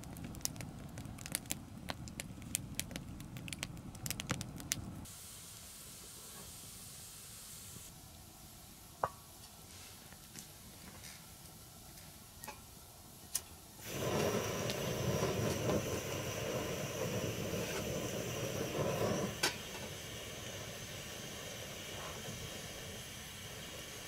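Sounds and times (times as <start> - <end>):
gas burner hissing: 0.0 - 9.8, 12.4 - 24.0.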